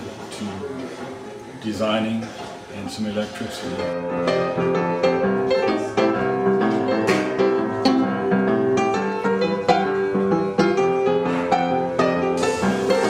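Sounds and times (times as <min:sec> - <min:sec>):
instrumental background music: 0:03.9 - 0:13.0.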